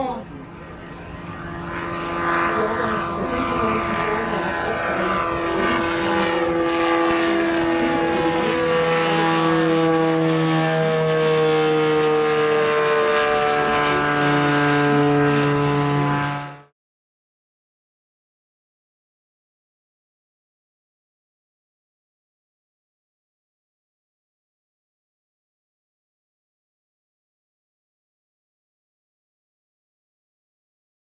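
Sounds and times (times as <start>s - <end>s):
drone propeller droning overhead: 0.0s - 16.7s.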